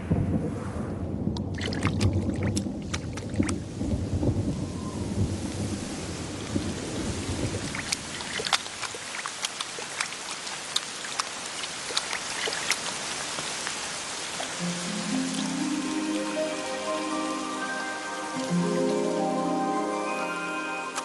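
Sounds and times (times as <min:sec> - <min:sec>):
low thunder rumble: 0:00.0 - 0:08.2
rain falling: 0:00.0 - 0:21.0
large raindrops tapping: 0:01.0 - 0:18.7.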